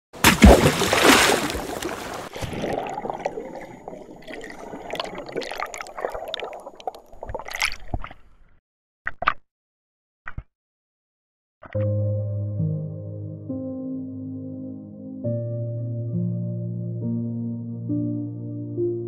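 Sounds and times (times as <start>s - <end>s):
water splash: 0.2s - 8.2s
underwater bubbling and gurgling: 1.5s - 8.3s.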